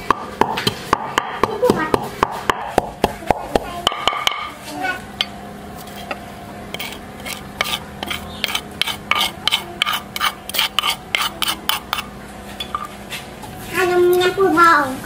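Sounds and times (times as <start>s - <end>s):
metal spoon scraping grains in pan: 5.8s - 12.7s.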